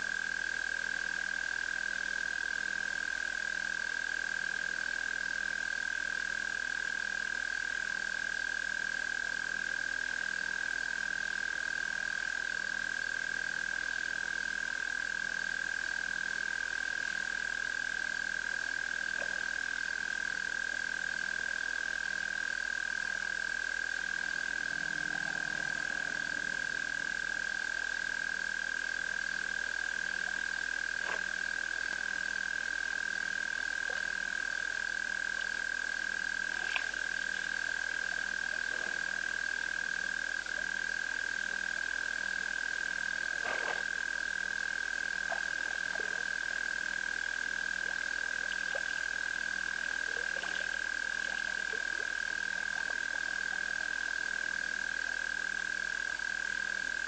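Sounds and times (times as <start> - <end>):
frogs trilling: 16.0 - 57.0
low frog croak: 19.1 - 19.6, 23.7 - 28.6, 30.1 - 32.2, 35.2 - 54.7.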